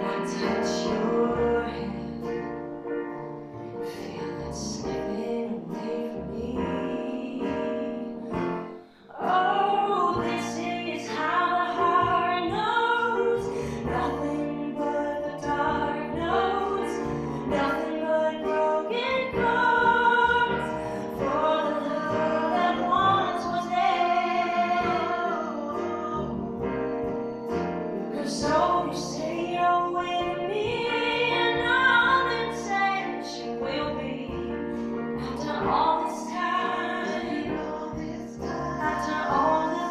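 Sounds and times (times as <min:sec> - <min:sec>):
woman singing a ballad: 0:00.0 - 0:02.6, 0:03.9 - 0:26.6, 0:28.1 - 0:39.9
upright bass: 0:00.0 - 0:08.7, 0:09.8 - 0:39.9
acoustic guitar: 0:00.0 - 0:39.9
piano: 0:00.0 - 0:39.9.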